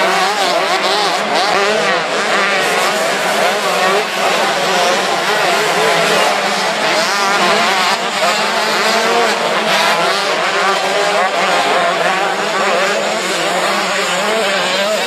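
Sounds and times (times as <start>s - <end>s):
motocross bikes revving: 0.0s - 15.0s.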